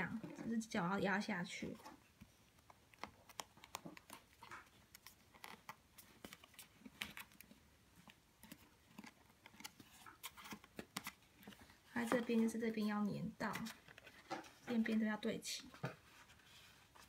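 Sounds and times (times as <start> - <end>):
paper rustling: 1.8 - 12.8.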